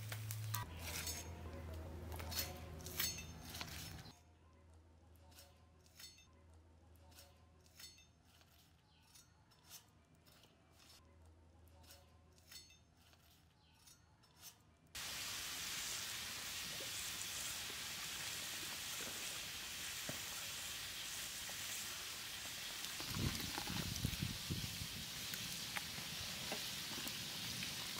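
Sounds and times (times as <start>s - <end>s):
rice boiling in a pot: 15.0s - 27.9s.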